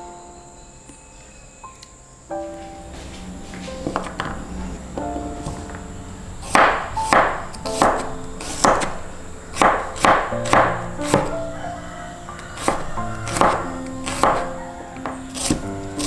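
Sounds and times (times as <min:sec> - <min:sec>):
background music with held notes: 0:00.0 - 0:16.0
knife chopping on cutting board: 0:06.5 - 0:09.0, 0:09.6 - 0:11.3, 0:12.6 - 0:14.5, 0:15.4 - 0:15.6.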